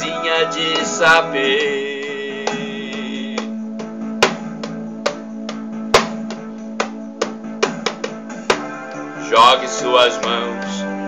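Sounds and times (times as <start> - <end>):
guitar instrumental music: 0.0 - 11.0
sharp uneven taps: 0.7 - 9.1, 10.1 - 10.8
frame drum struck by hand: 2.4 - 8.7.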